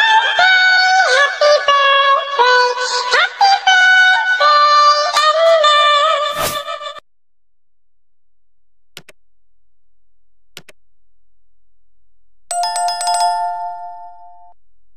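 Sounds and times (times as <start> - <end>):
mouse clicks: 9.0 - 9.2, 10.6 - 10.8
bright bell-like chime: 12.5 - 14.6.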